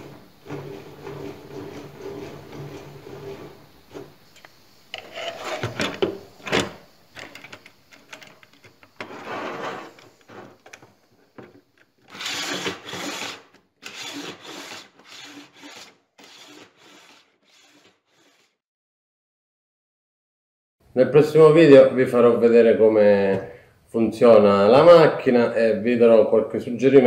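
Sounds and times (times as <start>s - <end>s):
metal scraping on table top: 0.0s - 4.2s, 4.9s - 6.0s, 9.0s - 10.7s, 12.1s - 18.6s.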